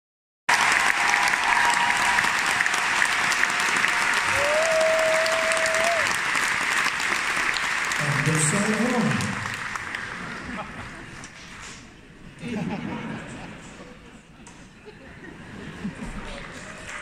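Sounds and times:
audience clapping: 0:00.5 - 0:11.0, 0:16.3 - 0:17.0.

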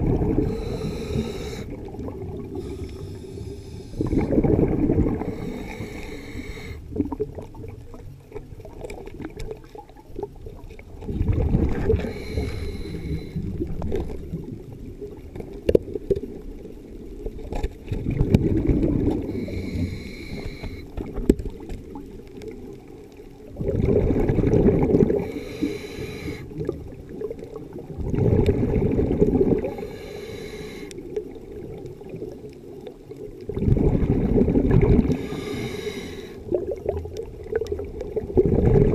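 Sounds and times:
exhaled bubbles underwater: 0:00.0 - 0:38.9
steady underwater background: 0:00.0 - 0:38.9
diver breathing through regulator: 0:00.2 - 0:06.9, 0:11.7 - 0:13.7, 0:19.1 - 0:21.0, 0:25.1 - 0:26.7, 0:29.6 - 0:31.0, 0:34.9 - 0:36.6.

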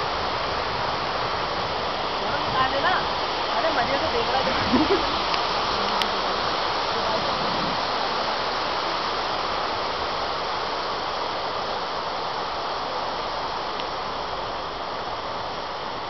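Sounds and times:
water rushing into basin: 0:00.0 - 0:10.8.

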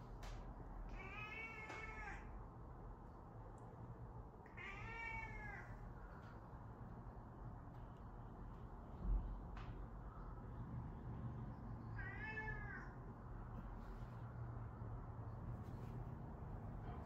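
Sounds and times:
cat meowing: 0:00.9 - 0:02.3, 0:04.5 - 0:05.8, 0:11.9 - 0:13.0.

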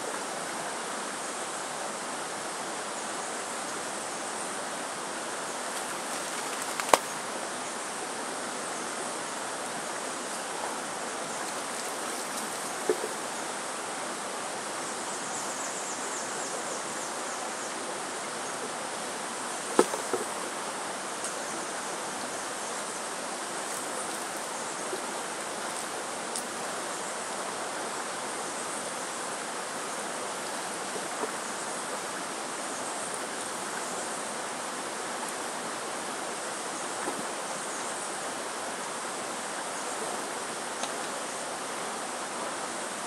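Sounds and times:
outdoor hiss: 0:00.0 - 0:43.0
faint insect buzzing: 0:05.5 - 0:07.8, 0:08.6 - 0:13.6.

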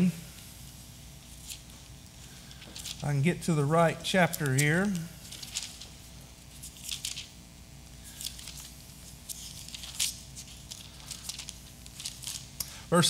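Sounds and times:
thin pages turning: 0:02.4 - 0:03.0, 0:04.2 - 0:07.4, 0:08.1 - 0:12.6.

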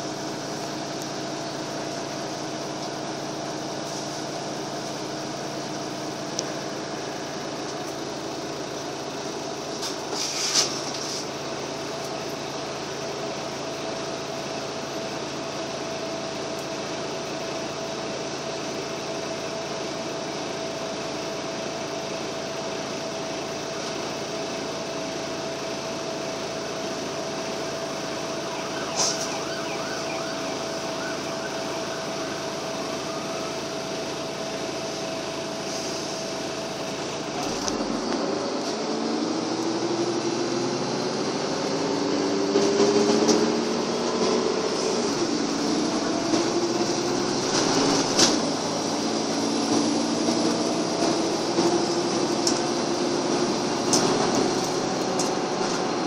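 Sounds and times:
bus diesel engine idling: 0:00.0 - 0:56.0
bus engine revving up: 0:24.5 - 0:56.0
steady whine: 0:26.1 - 0:56.0.

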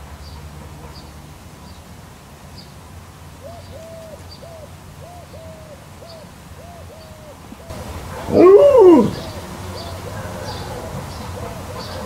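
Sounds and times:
garden sprinkler hissing: 0:00.0 - 0:12.0
dove cooing: 0:03.4 - 0:12.0.

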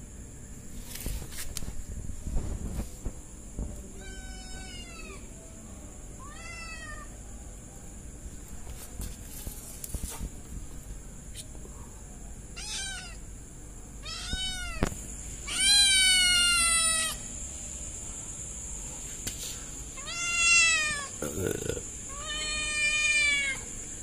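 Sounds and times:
kitten meowing: 0:04.0 - 0:05.2, 0:12.6 - 0:13.2, 0:14.0 - 0:17.2, 0:20.0 - 0:21.1.

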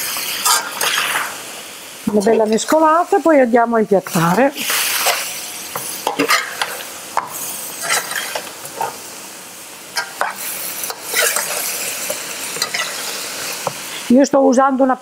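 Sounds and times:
spatula scraping a pan: 0:00.0 - 0:01.3, 0:04.2 - 0:09.0, 0:10.0 - 0:13.8
peppers sizzling in a pan: 0:00.0 - 0:15.0.

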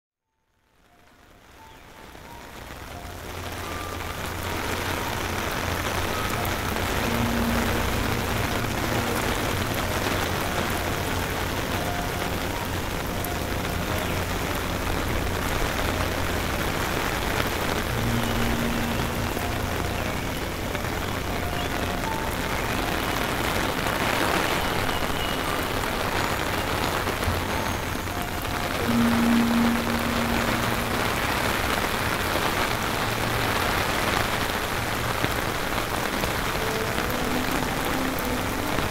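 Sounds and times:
rain falling and splashing: 0:00.5 - 0:38.9.

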